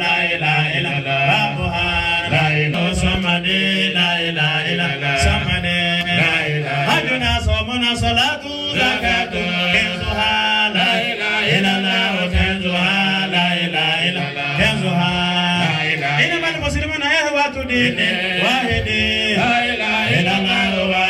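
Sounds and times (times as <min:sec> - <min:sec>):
man chanting through microphone: 0:00.0 - 0:21.0.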